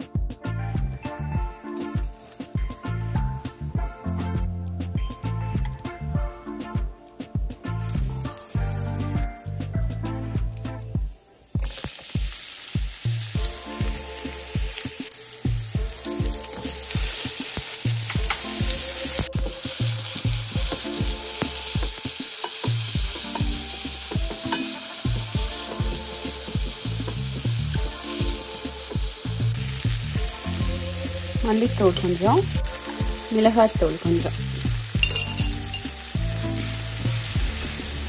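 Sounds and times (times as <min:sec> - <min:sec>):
food sizzling in oil: 0:01.1 - 0:04.4, 0:07.6 - 0:09.8, 0:11.0 - 0:38.0
food being stirred: 0:11.6 - 0:37.6.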